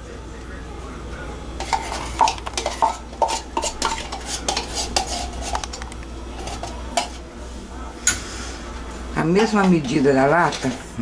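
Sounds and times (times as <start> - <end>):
metal spoon scraping tin can: 1.6 - 5.8.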